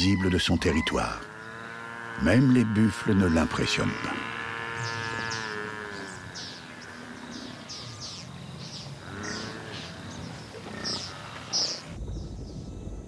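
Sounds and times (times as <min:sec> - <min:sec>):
buffalo bleating call: 0:00.0 - 0:08.2.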